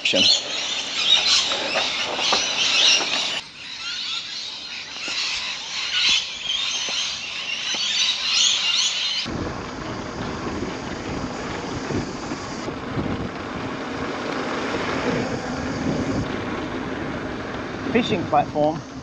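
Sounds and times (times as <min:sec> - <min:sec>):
flock of birds squawking: 0:00.0 - 0:09.3
low rumble: 0:09.3 - 0:19.0.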